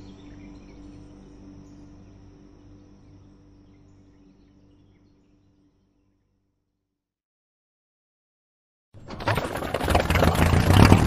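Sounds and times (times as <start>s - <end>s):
boat engine humming: 9.0s - 11.0s.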